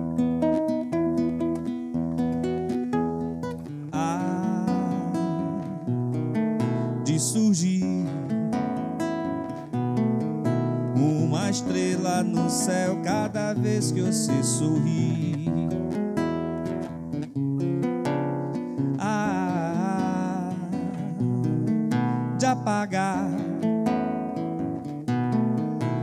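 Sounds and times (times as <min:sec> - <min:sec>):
acoustic guitar strumming: 0:00.0 - 0:26.0
man singing: 0:03.9 - 0:05.9, 0:06.9 - 0:08.9, 0:10.9 - 0:16.0, 0:18.9 - 0:24.0.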